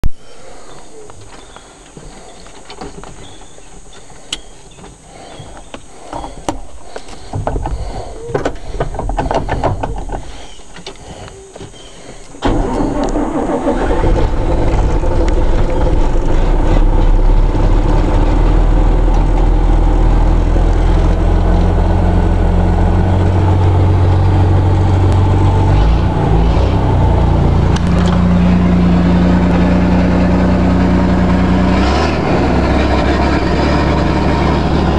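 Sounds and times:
diesel engine idling: 0:12.0 - 0:34.9
starter motor cranking: 0:12.4 - 0:18.3.

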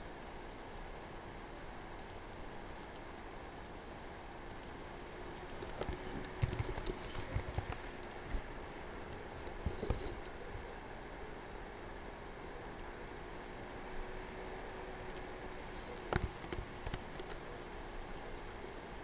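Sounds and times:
keyboard key clicks: 0:05.4 - 0:07.7.

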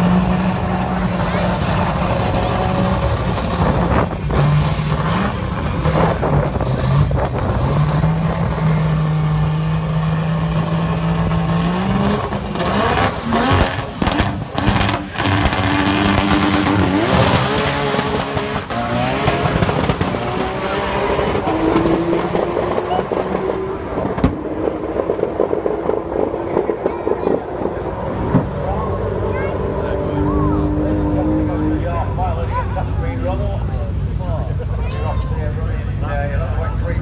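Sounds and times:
cars accelerating through gear changes: 0:00.0 - 0:26.8
race car engines revving: 0:00.0 - 0:37.0.

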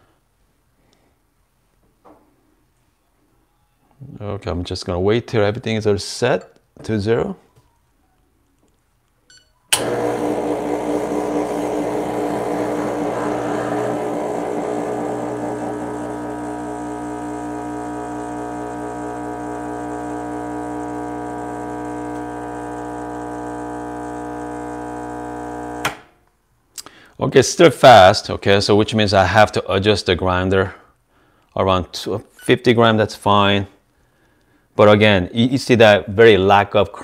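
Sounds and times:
espresso machine pump buzzing: 0:09.8 - 0:26.0.

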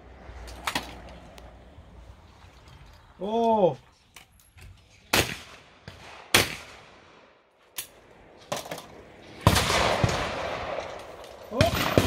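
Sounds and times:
shotgun shots: 0:05.1 - 0:07.3, 0:09.4 - 0:12.0.

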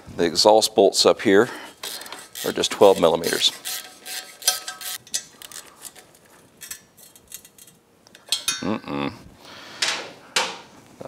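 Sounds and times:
ratchet metallic clicks: 0:01.8 - 0:06.0.

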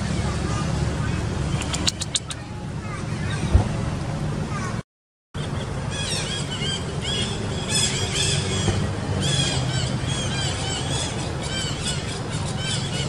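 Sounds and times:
high-pitched squealing calls: 0:01.5 - 0:03.5.

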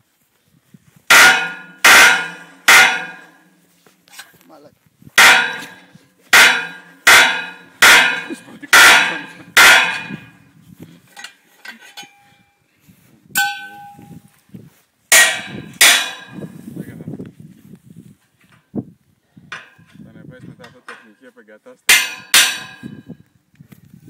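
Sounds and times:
wrench clanging on steel mast: 0:01.1 - 0:03.5, 0:05.2 - 0:10.4, 0:11.1 - 0:12.4, 0:13.4 - 0:14.2, 0:15.1 - 0:16.5, 0:19.5 - 0:21.2, 0:21.9 - 0:23.1
metal ringing ding: 0:11.9 - 0:12.5, 0:13.4 - 0:14.2.

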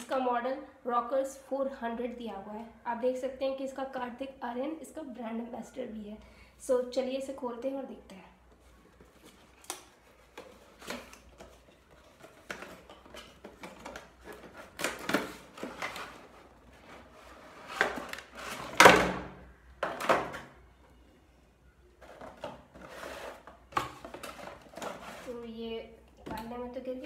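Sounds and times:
plastic tray rustling and scraping: 0:08.8 - 0:18.8, 0:22.0 - 0:25.5.

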